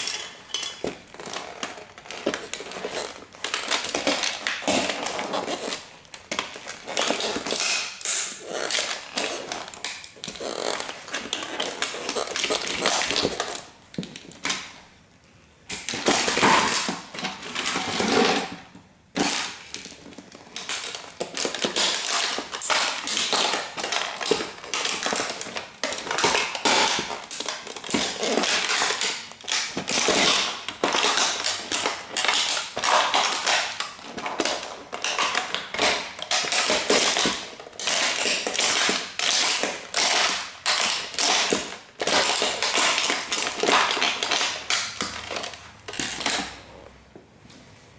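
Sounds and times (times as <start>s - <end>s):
toy car crushed under boots: 0.0s - 14.7s, 15.7s - 46.7s.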